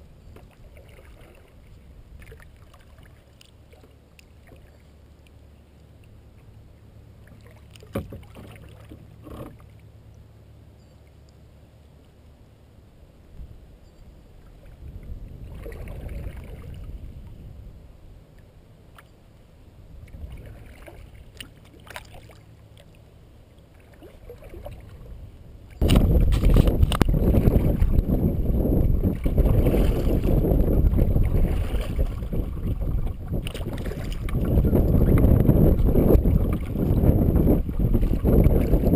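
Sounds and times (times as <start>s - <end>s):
paddle strokes in water: 0.3s - 6.5s, 7.2s - 10.0s, 14.4s - 17.4s, 20.0s - 38.9s
wind buffeting microphone: 14.6s - 18.0s, 24.5s - 38.9s.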